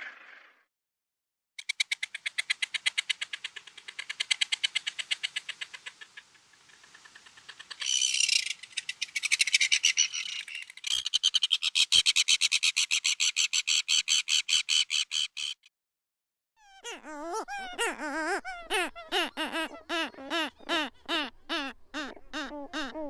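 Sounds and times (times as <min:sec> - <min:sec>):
seagull calls: 0:16.6 - 0:23.0.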